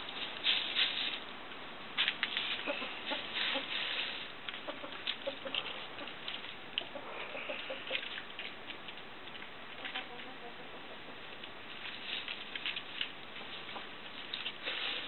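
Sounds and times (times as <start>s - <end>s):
hens scratching in leaves and gravel: 0.0s - 15.0s
hens clucking softly: 2.6s - 8.5s, 9.3s - 11.4s.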